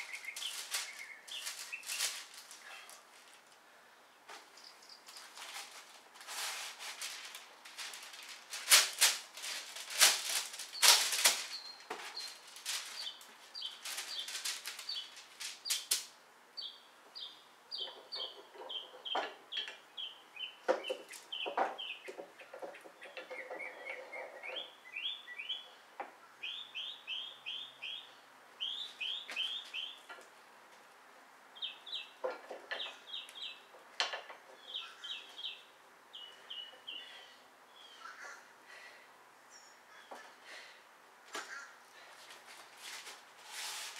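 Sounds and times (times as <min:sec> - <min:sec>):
small bird chirping: 0:00.0 - 0:02.2, 0:10.8 - 0:15.9, 0:16.6 - 0:25.8, 0:26.4 - 0:30.1
knocks and clatter on wooden boards: 0:20.7 - 0:24.0, 0:33.8 - 0:34.6.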